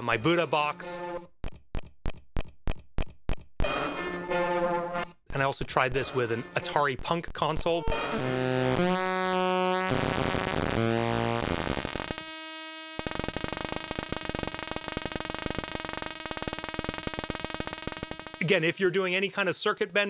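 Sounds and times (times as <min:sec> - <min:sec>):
buzzy square-wave tone: 0:07.6 - 0:19.1
rapid crackling sputtering pulse: 0:07.8 - 0:18.8.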